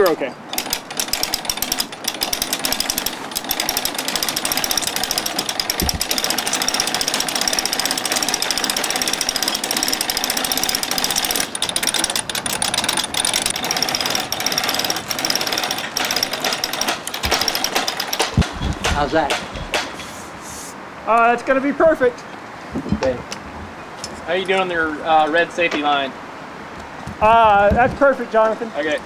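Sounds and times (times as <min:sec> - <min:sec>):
winch ratcheting: 0:00.0 - 0:20.2.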